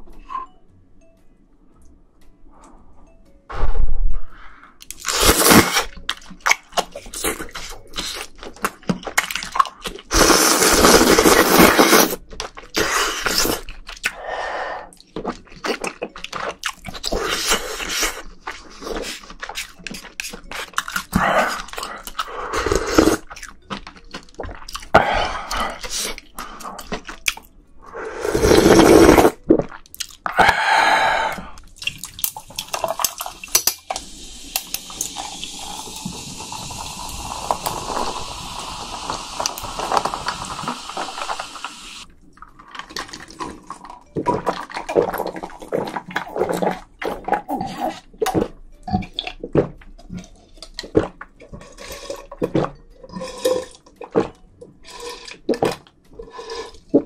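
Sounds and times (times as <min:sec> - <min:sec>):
slurping noodles: 0:05.0 - 0:06.0, 0:10.1 - 0:13.7, 0:17.0 - 0:19.3, 0:20.6 - 0:23.3, 0:27.9 - 0:29.4, 0:34.6 - 0:42.1, 0:50.2 - 0:57.0
smacking chews: 0:14.9 - 0:27.5, 0:29.4 - 0:30.7, 0:31.6 - 0:33.6, 0:42.3 - 0:57.0
soda pouring over ice: 0:33.9 - 0:42.0.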